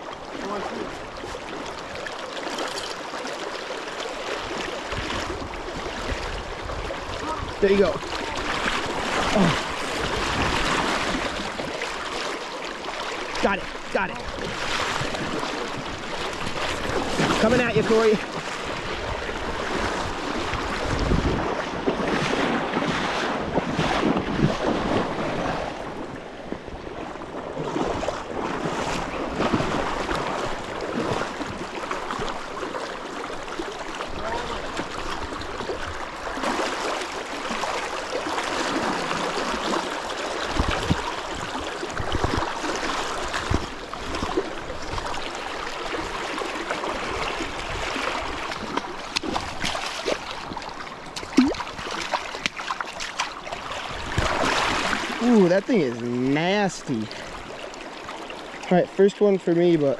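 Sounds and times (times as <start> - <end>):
river rushing and splashing: 0.0 - 59.9.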